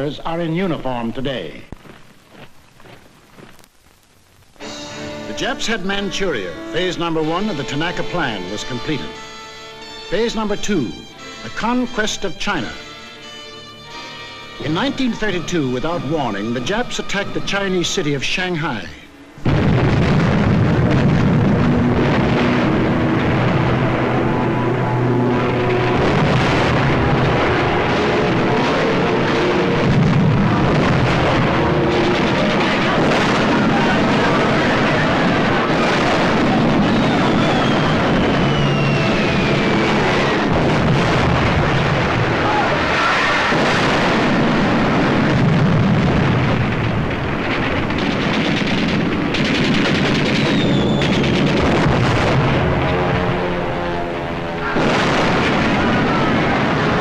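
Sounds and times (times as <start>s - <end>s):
rumble of explosions with crackling: 0.0s - 9.2s, 14.6s - 57.0s
rapid fire rattle: 19.4s - 53.5s, 54.2s - 57.0s
gunfire: 19.4s - 54.0s, 54.6s - 57.0s
falling whistle: 36.8s - 40.0s, 50.4s - 51.2s.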